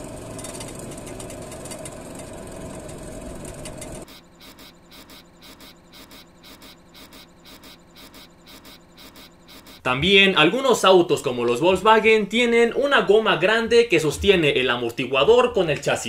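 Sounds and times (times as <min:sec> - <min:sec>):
road and engine noise: 0:00.0 - 0:09.9.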